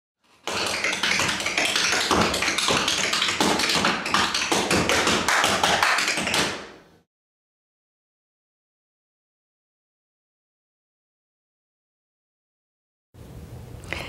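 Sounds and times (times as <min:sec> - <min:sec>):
tap shoes clicking on hard floor: 0:00.3 - 0:06.7.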